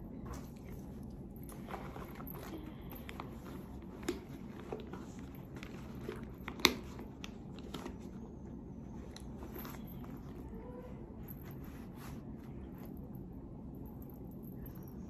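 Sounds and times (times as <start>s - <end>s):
soft taps and clicks of bag: 1.4s - 8.1s.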